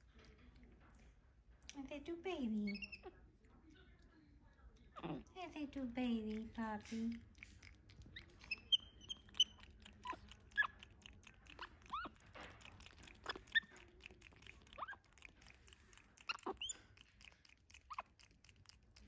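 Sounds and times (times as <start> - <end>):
monkeys squeaking and chirping: 2.7 - 3.1, 8.0 - 10.8, 11.5 - 12.2, 14.7 - 15.1, 16.2 - 17.0
mouth-smacking clicks: 6.3 - 19.0.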